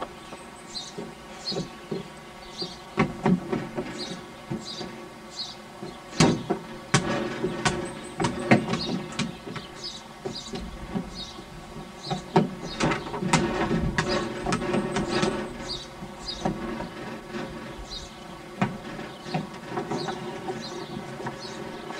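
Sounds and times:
toddler footsteps on boards: 0.0 - 5.0, 5.8 - 21.9.

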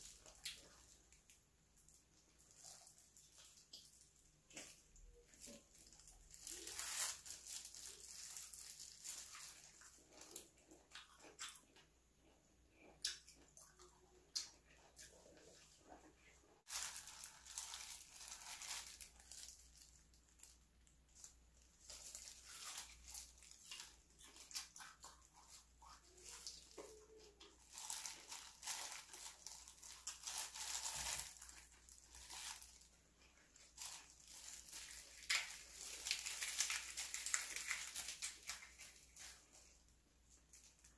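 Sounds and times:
plastic gloves crinkling: 0.0 - 11.6, 14.6 - 40.9
chewing food: 7.4 - 39.8.

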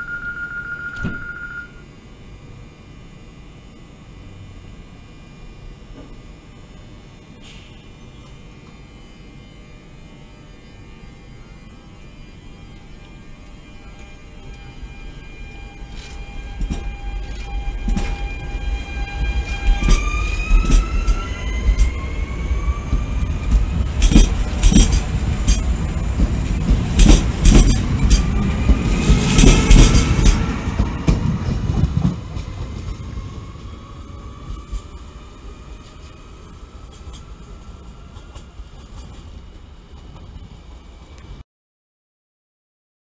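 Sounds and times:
train whine rising in pitch: 0.0 - 41.4
train wheels clicking over rail joints: 15.8 - 22.1, 22.8 - 35.0, 36.8 - 41.4.

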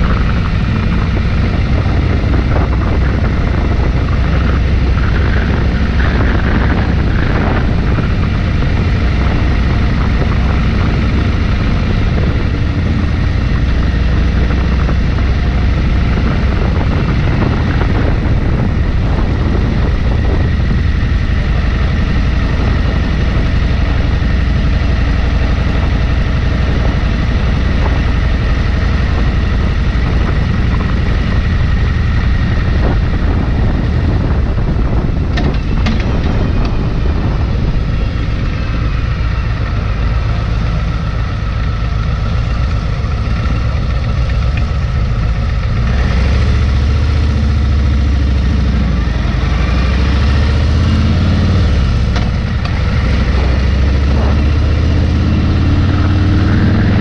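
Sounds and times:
motorcycle engine rumble: 0.0 - 57.0
wind buffeting microphone: 0.0 - 57.0.

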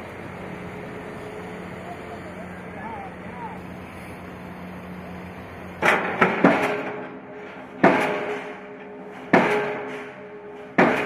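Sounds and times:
pile hammer metallic blows ringing: 5.8 - 11.0.

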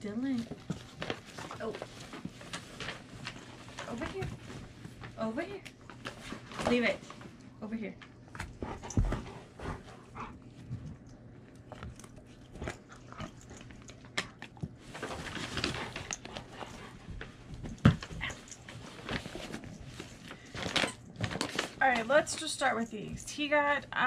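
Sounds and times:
tissue paper rustling: 0.2 - 7.1, 14.8 - 16.6, 18.6 - 22.2.

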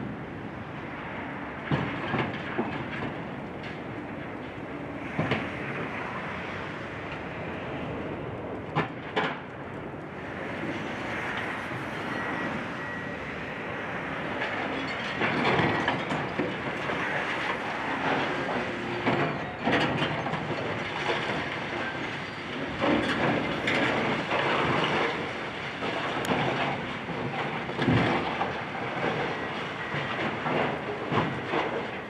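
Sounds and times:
heavy machinery demolishing building: 14.4 - 32.0.

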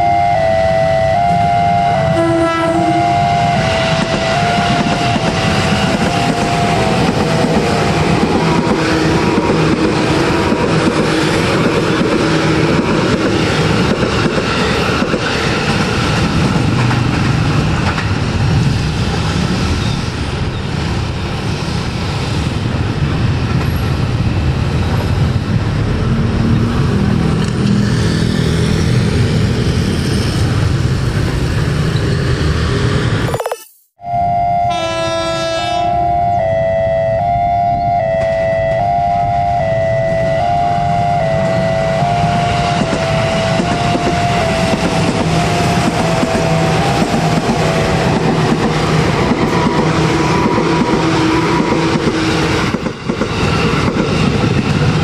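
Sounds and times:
train horn: 0.0 - 11.4, 34.0 - 48.2
train wheels clattering on rails: 3.6 - 24.2, 42.7 - 55.0.

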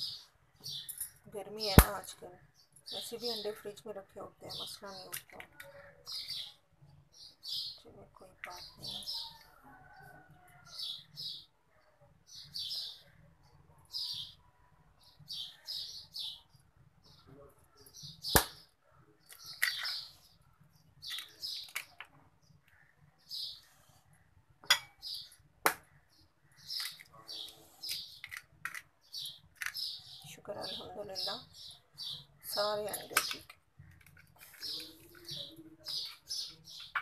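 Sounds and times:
bird chirping: 0.0 - 37.0
eggs cracking against bowl rim: 21.1 - 22.2, 26.7 - 27.2, 27.9 - 29.8.

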